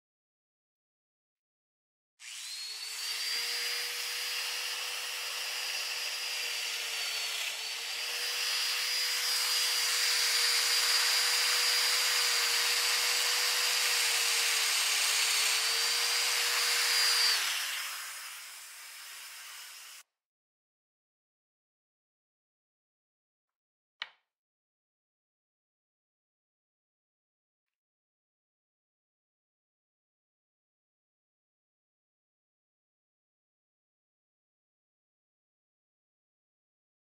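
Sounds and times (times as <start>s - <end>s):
cutter milling wood: 2.2s - 20.0s
motor spinning down: 2.2s - 20.0s
power tool whining: 2.2s - 20.0s.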